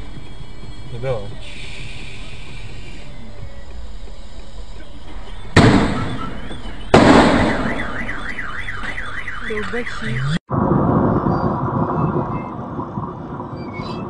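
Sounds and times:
car alarm warbling: 0.0 - 10.4
loud sharp bangs: 5.5 - 9.2.

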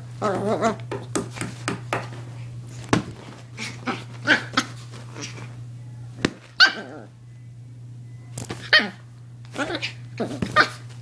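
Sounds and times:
small dog barking: 6.6 - 7.1, 8.6 - 9.0, 9.6 - 10.8.

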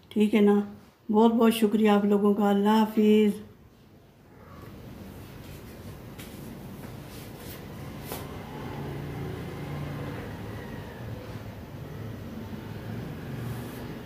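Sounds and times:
low mechanical hum: 3.0 - 14.0.

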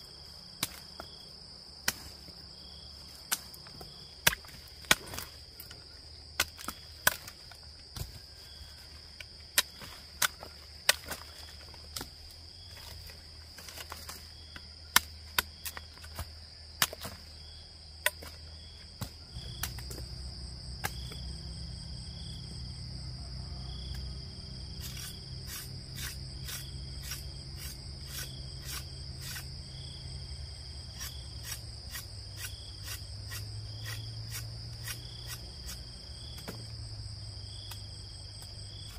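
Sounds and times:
insects chirring shrilly: 24.5 - 36.4.

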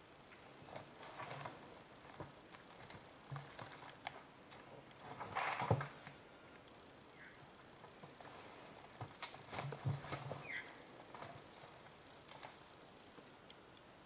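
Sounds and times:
logs knocking and scraping: 0.7 - 6.2, 7.9 - 13.3.

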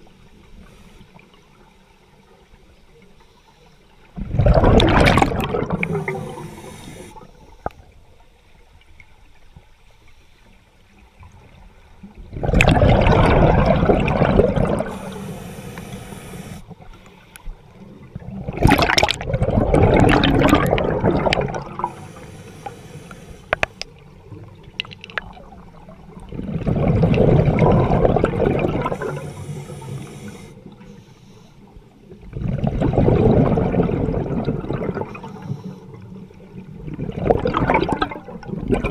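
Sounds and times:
exhaled bubbles underwater: 4.1 - 8.2, 11.2 - 30.9, 32.0 - 38.9
regulator hiss: 5.9 - 7.3, 14.9 - 16.7, 21.8 - 23.8, 29.0 - 31.6.

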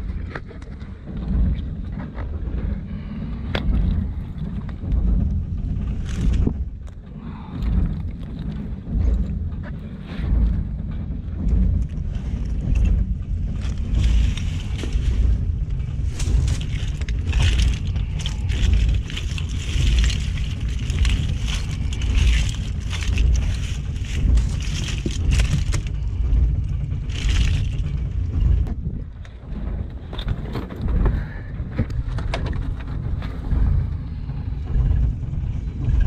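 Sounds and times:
boat engine rumbling: 0.0 - 36.0
shellfish crackling and clinking: 16.1 - 26.0, 27.0 - 27.9.

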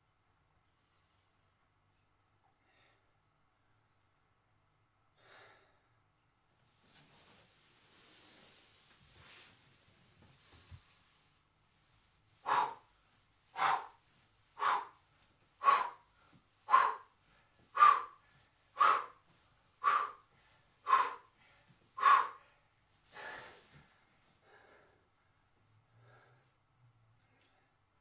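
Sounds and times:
man breathing out forcefully: 12.4 - 12.9, 13.6 - 14.0, 14.6 - 15.0, 15.6 - 16.0, 16.7 - 19.2, 19.8 - 22.5.

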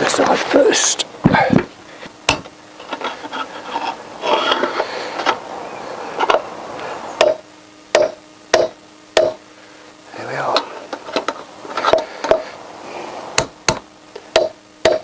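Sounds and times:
hammer striking metal: 7.2 - 9.4, 13.4 - 15.0.

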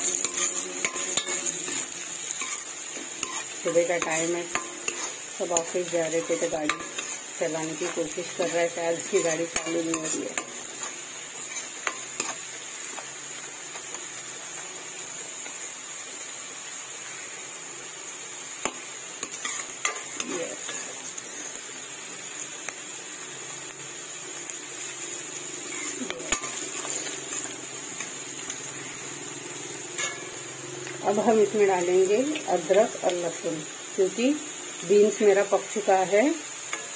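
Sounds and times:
metal spoon scraping pan: 0.0 - 12.4, 25.7 - 29.0, 29.9 - 30.4
vegetables sizzling in oil: 0.0 - 36.9.

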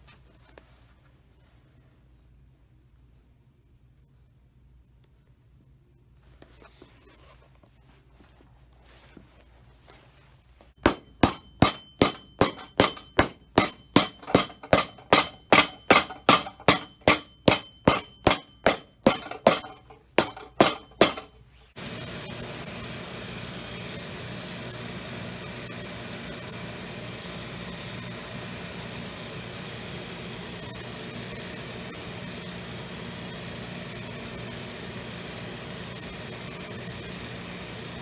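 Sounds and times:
hammer tapping shoe sole: 10.8 - 21.3
workshop machine motor running: 10.8 - 38.0.

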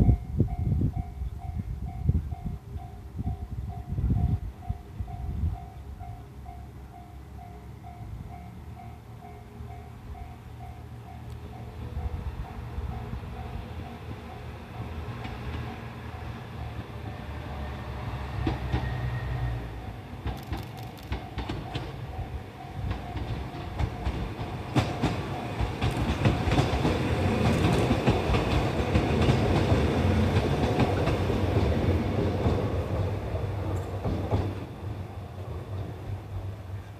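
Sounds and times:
diesel railcar engine drone: 0.0 - 36.9
wheels clicking over rail joints: 20.2 - 34.8.

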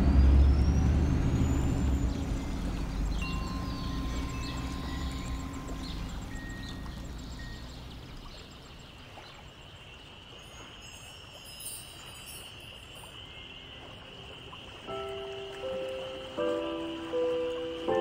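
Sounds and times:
high tinkling chimes: 0.2 - 8.1, 10.4 - 13.7
ambient hiss: 2.2 - 18.0.

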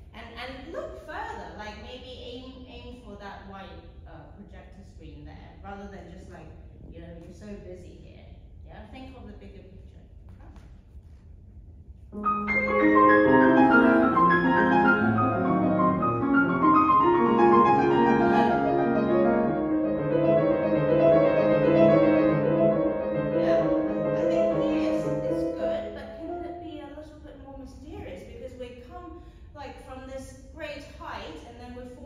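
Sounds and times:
grand piano playing: 12.2 - 26.8.

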